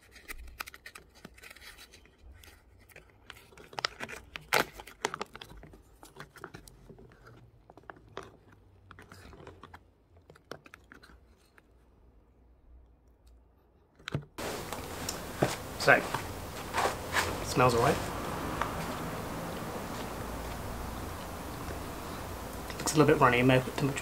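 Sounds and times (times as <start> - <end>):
food pouch tearing open: 0.0 - 6.6.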